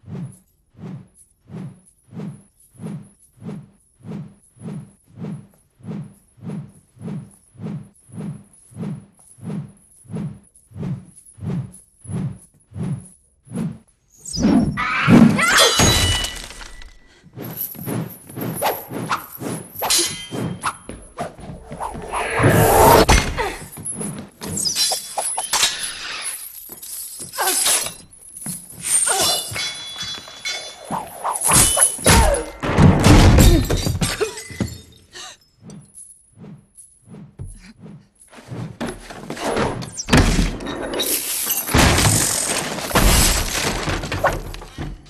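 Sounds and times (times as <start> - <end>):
chain whirling and rattling: 0.0 - 14.3, 17.4 - 32.4, 34.9 - 38.8
tables and dishes breaking: 15.6 - 17.1, 28.8 - 35.0, 40.2 - 45.0
heavy thuds and smashes: 41.7 - 45.0.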